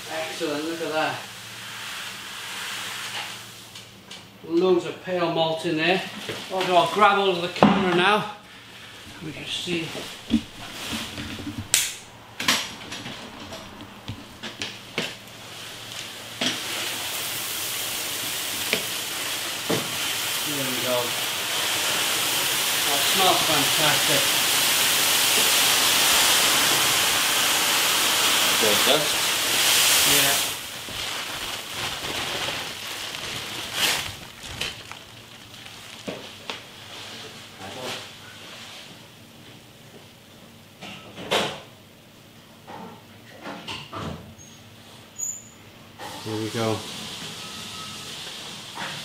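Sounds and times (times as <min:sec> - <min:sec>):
grain pouring hiss: 0:00.0 - 0:03.8, 0:08.5 - 0:38.8, 0:46.0 - 0:49.0
sack rustling and knocking: 0:09.2 - 0:12.0, 0:29.6 - 0:37.2.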